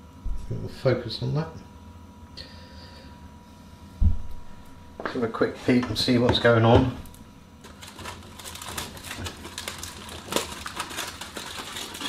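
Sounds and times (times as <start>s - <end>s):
aluminium foil crinkling: 7.6s - 12.0s.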